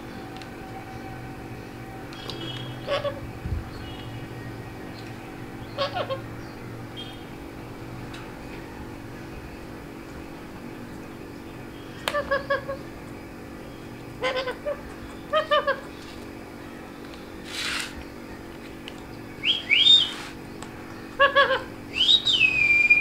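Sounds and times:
parakeet rising whistles: 19.4 - 20.3, 21.9 - 23.0.

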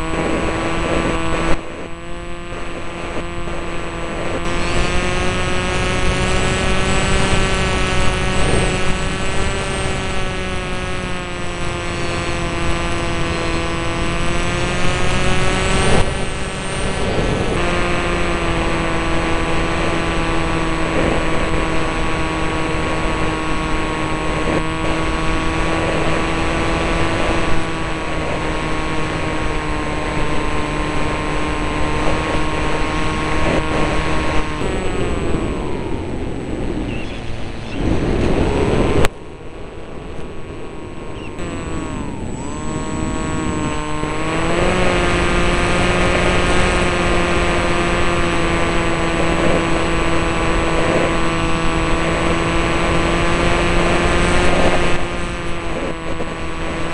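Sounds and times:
aircraft engine drone: 0.0 - 56.9.

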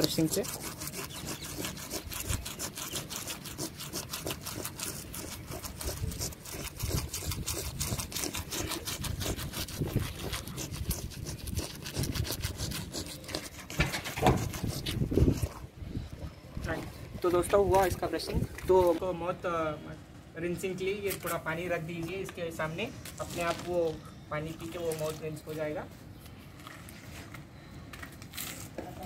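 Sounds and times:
toothbrush scrubbing dog's teeth: 0.0 - 15.6.

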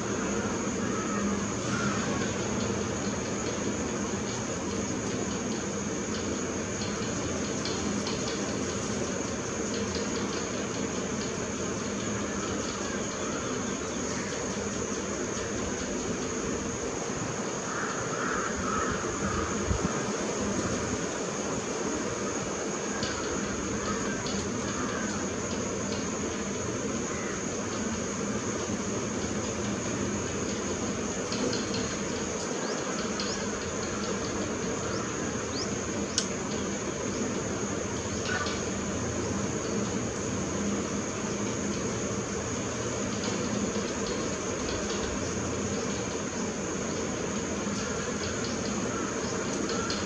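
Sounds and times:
high-pitched insect drone: 0.0 - 50.0
sharp tick: 36.1 - 36.4.

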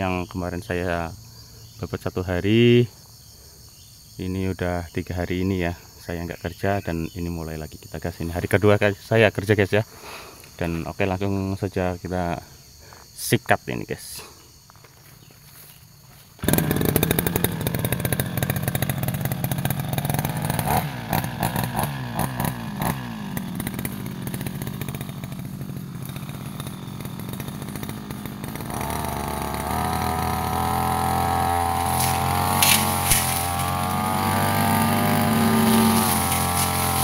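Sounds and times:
brush cutter engine running: 16.4 - 37.0.

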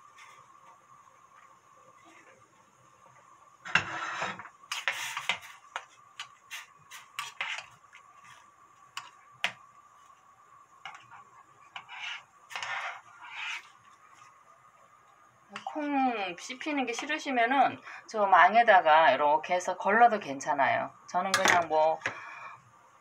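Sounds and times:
spoon stirring in ceramic pot: 3.7 - 10.1, 10.8 - 14.4.

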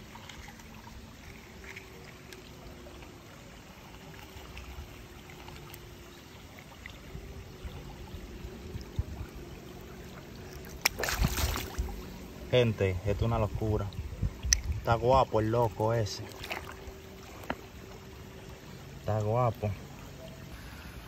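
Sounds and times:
river running over pebbles: 9.0 - 20.2.

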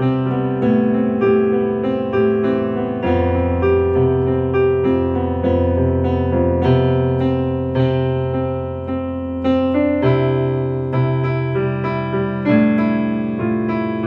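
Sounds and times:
keyboard playing piano melody: 0.0 - 14.0.

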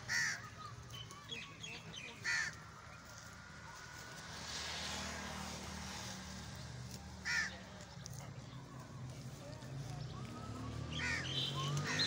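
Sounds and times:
distant traffic rumble: 0.0 - 12.0
crow cawing: 0.1 - 0.5, 2.2 - 2.6, 7.2 - 7.5, 11.0 - 12.0
vehicle passing: 1.8 - 12.0.

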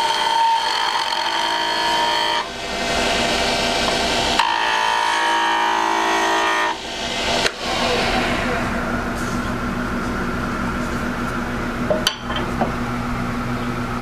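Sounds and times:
chisel cutting wood on lathe: 0.0 - 6.8
lathe running: 0.0 - 14.0.

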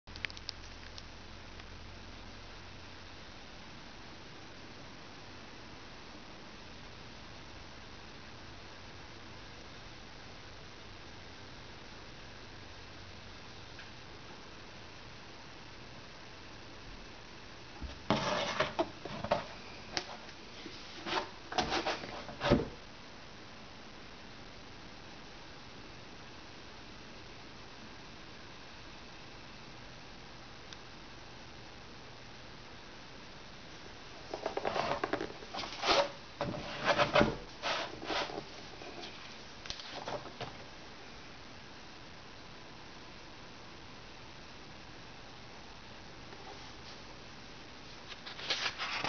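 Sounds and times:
low steady hiss: 0.0 - 49.0
book cover rubbing scrapes: 18.1 - 19.5, 20.6 - 22.7, 34.3 - 39.2.

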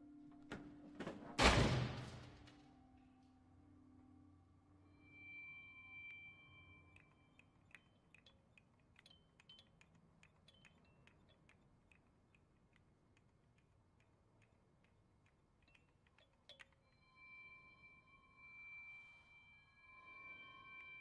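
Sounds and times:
tinkling clicks of glass pieces: 6.9 - 11.8, 15.6 - 16.9.

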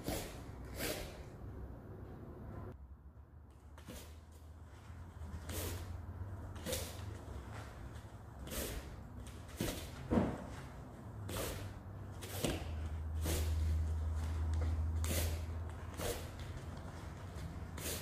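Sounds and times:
sharp hissing exhales: 0.0 - 1.2, 5.4 - 6.0, 8.4 - 9.0, 11.3 - 12.6, 13.2 - 13.8, 15.0 - 16.3, 17.8 - 18.0.

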